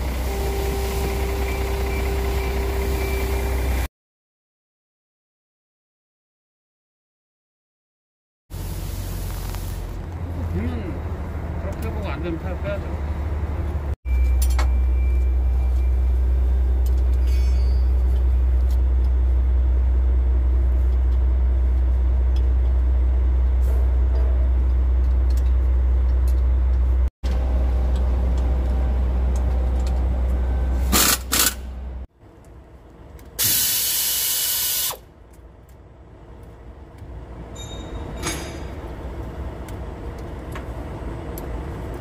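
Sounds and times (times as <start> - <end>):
loud low machine hum: 12.4 - 32.8
compressed air hiss: 33.4 - 35.0
metal clanks: 37.5 - 38.9.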